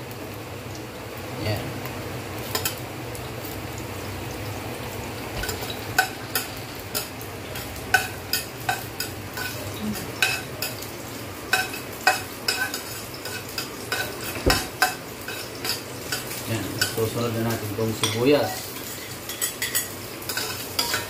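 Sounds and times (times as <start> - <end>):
garlic sizzling in oil: 0.0 - 21.0
metal spoon scraping a pot: 18.0 - 21.0.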